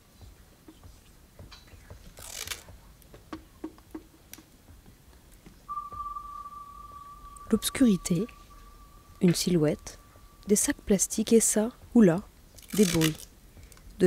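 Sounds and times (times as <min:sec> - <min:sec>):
steady high tone: 0:05.7 - 0:11.6.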